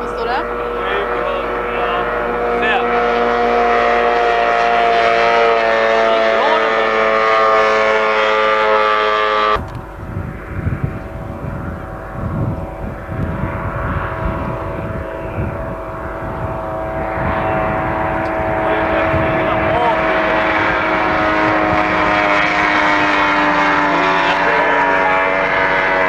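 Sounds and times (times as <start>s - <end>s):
distant boat engine: 0.0s - 26.0s
outboard engine at full throttle: 0.0s - 26.0s
wind rumble on microphone: 9.4s - 26.0s.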